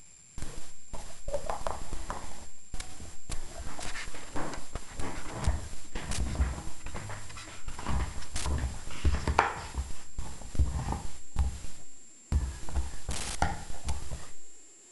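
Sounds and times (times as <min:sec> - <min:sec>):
dull low thuds: 0:04.1 - 0:14.3.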